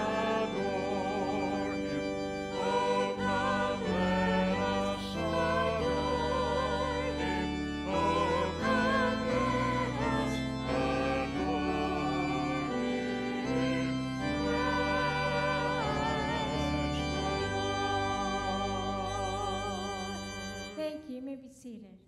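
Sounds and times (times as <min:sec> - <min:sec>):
sustained accompaniment chords: 0:00.0 - 0:21.0
women's vocal group singing: 0:02.6 - 0:13.8, 0:14.4 - 0:19.0.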